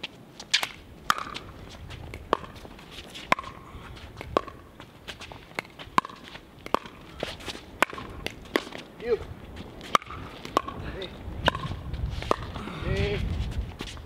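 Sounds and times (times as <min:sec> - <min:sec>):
ball bouncing on court: 0:01.1 - 0:01.5, 0:02.1 - 0:02.6, 0:03.3 - 0:03.6, 0:04.2 - 0:04.7, 0:05.6 - 0:08.8, 0:09.8 - 0:12.6.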